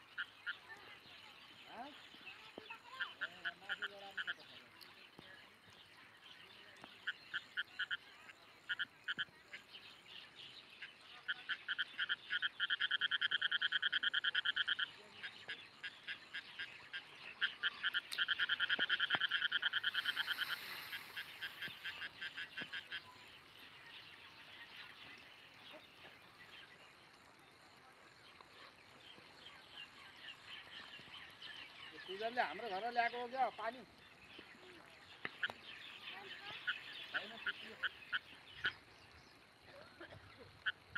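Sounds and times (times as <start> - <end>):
animal calling in pulsed trills: 15.9 - 23.6.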